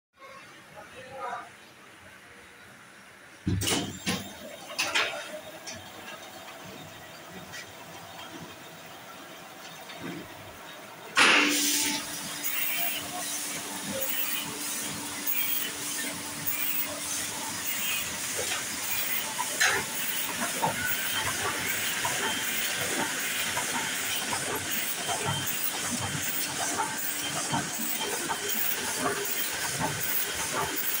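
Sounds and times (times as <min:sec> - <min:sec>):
burst of hiss: 0:11.2 - 0:12.0
rapid mechanical clatter: 0:12.4 - 0:31.0.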